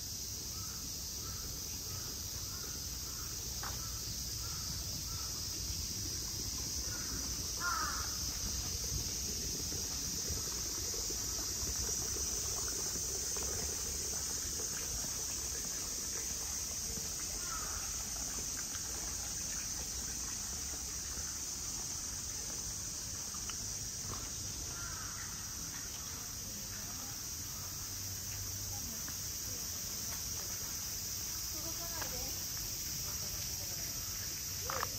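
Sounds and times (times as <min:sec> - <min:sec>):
high-pitched insect drone: 0:00.0 - 0:25.6
crows cawing: 0:06.9 - 0:08.2, 0:17.4 - 0:17.8, 0:24.7 - 0:25.6.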